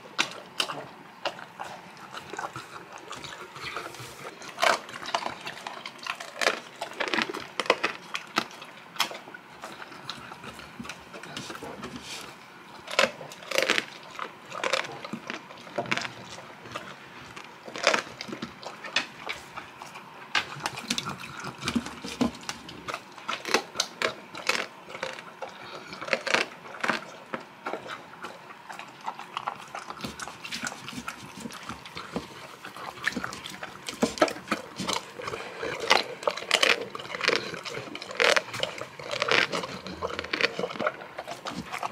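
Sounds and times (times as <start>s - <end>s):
dog chewing and gulping: 0.0s - 41.9s
sharp bone crunches: 33.0s - 41.9s.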